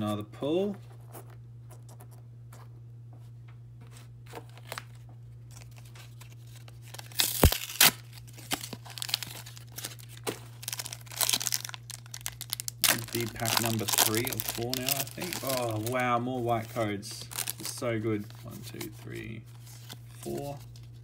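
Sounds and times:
low steady hum: 0:00.0 - 0:21.0
cards clicking and rustling: 0:04.3 - 0:21.0
foil wrapper crinkling and tearing: 0:05.5 - 0:19.0.

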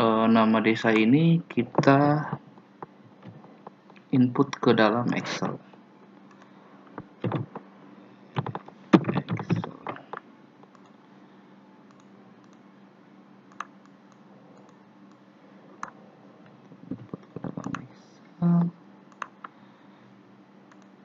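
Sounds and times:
faint low hum: 0:00.0 - 0:21.0
keyboard and mouse clicks: 0:06.3 - 0:07.6, 0:08.4 - 0:11.0, 0:13.5 - 0:15.2, 0:16.7 - 0:17.9, 0:19.1 - 0:19.5, 0:20.7 - 0:20.9.

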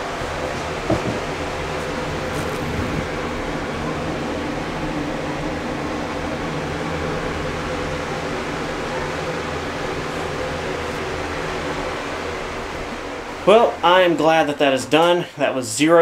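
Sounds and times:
mechanical whir with low hum: 0:00.0 - 0:16.0
faint knock: 0:00.9 - 0:01.2.

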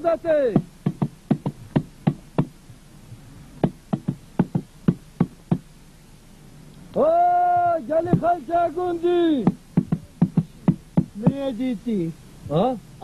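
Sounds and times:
sharp knocks: 0:00.5 - 0:02.6, 0:03.6 - 0:05.7, 0:07.6 - 0:08.4, 0:09.4 - 0:11.5.

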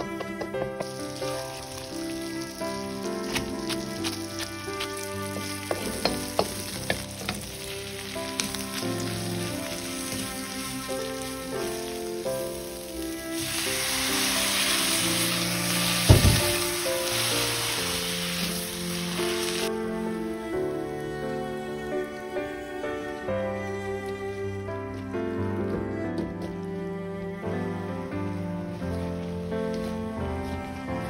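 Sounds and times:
wooden spatula clacking: 0:00.0 - 0:01.3, 0:03.2 - 0:07.6
cabbage stir-frying in a wok: 0:00.0 - 0:20.6
loud sizzling hiss: 0:00.0 - 0:25.4.

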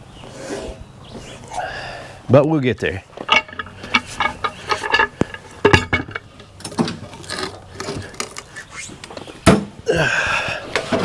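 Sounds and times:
clattering knocks and taps: 0:03.2 - 0:07.0.

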